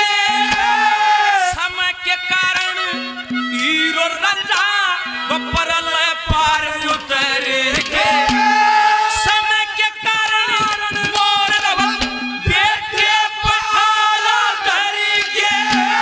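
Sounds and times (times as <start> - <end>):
drum strikes: 0.0 - 1.2, 6.3 - 14.0, 15.4 - 16.0
instrumental accompaniment: 0.0 - 16.0
man singing with vibrato: 0.0 - 16.0.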